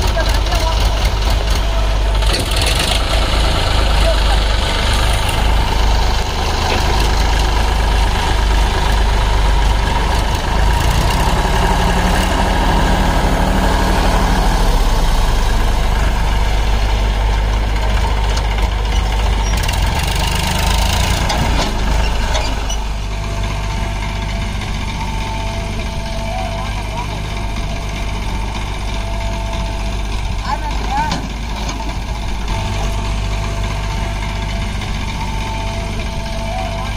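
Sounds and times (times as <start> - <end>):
tractor diesel engine running: 0.0 - 36.9.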